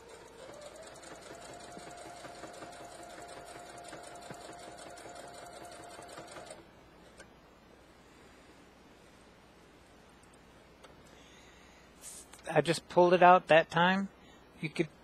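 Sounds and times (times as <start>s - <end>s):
sewing machine stitching: 0.0s - 6.6s.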